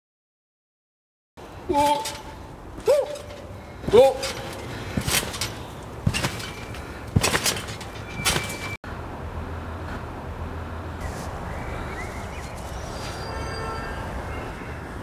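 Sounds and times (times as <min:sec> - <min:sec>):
low outdoor hum: 0:01.4 - 0:15.0
trampoline mat and springs creaking: 0:01.5 - 0:08.8, 0:11.9 - 0:14.4
faint bird chirps: 0:11.0 - 0:14.7.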